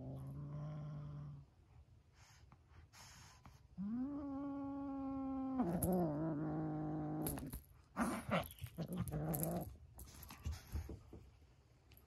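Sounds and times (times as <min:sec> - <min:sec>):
kitten growling: 0:00.0 - 0:01.4, 0:03.8 - 0:09.8.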